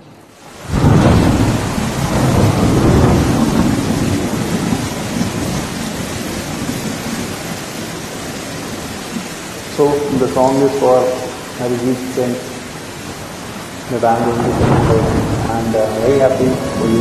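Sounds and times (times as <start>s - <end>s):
steady hiss: 0.1s - 17.0s
loud rumble: 14.0s - 17.0s.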